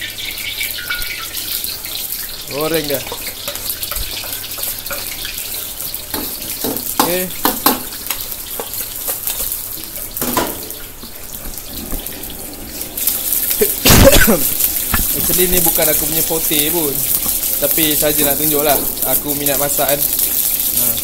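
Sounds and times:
noodles frying in hot oil: 0.0 - 21.0
tap running into sink: 6.1 - 7.9, 10.2 - 10.8.

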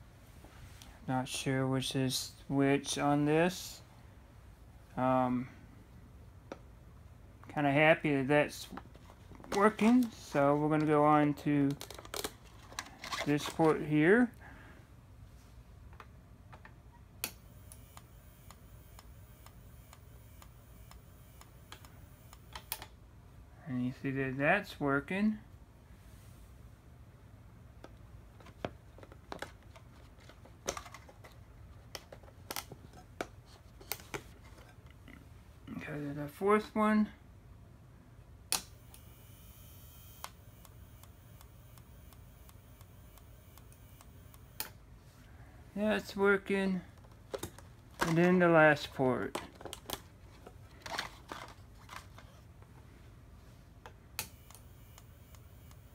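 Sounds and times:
faint high whine: 16.9 - 26.5, 38.6 - 46.9, 54.1 - 55.9
strobe flash ticking: 38.6 - 44.7.

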